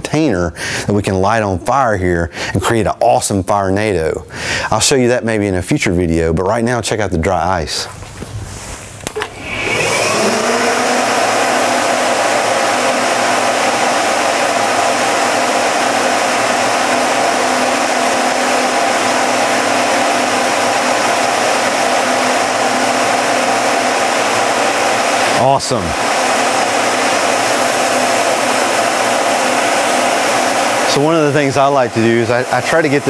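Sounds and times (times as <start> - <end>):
steady fan hum: 0.0 - 33.0
fans whining and rushing air: 8.9 - 33.0.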